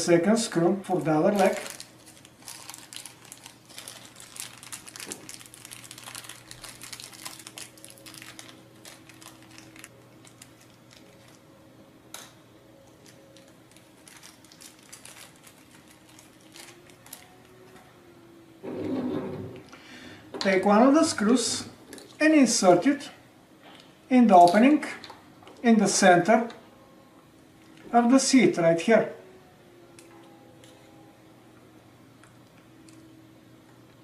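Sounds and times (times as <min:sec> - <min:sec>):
plastic bag crinkling: 0:01.1 - 0:11.4, 0:12.9 - 0:17.6.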